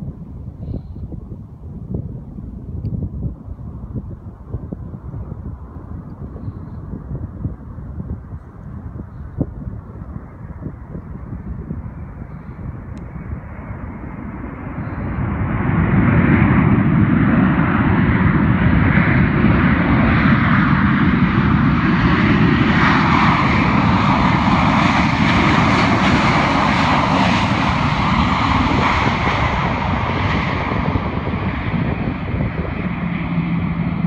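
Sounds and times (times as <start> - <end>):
jet engines roaring: 0.0 - 34.0.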